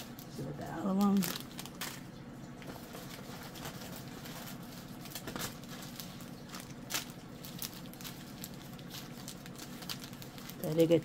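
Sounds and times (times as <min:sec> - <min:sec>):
low steady hum: 0:00.0 - 0:11.0
plastic packets crinkling: 0:00.0 - 0:11.0.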